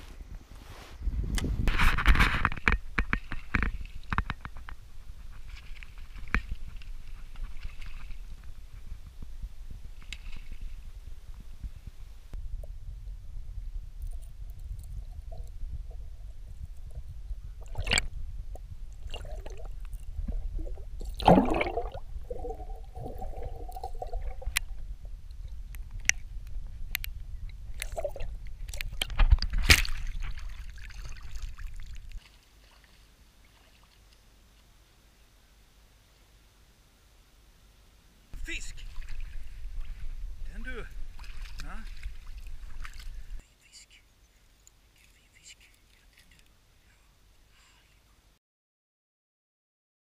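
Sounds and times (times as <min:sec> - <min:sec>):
muffled underwater rumble: 0:06.3 - 0:30.7
water gurgling: 0:14.9 - 0:25.7, 0:27.7 - 0:32.2.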